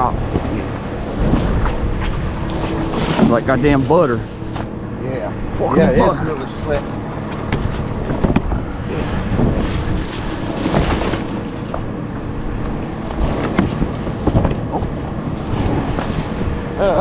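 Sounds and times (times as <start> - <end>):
garbage truck engine rumbling: 0.0 - 17.0
cardboard boxes scraping and knocking: 9.4 - 11.9, 13.2 - 16.5.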